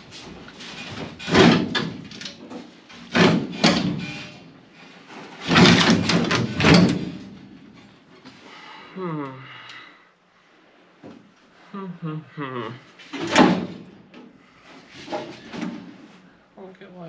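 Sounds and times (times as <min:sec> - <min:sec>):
metal panel banging and scraping: 0:00.6 - 0:04.5, 0:05.1 - 0:07.6.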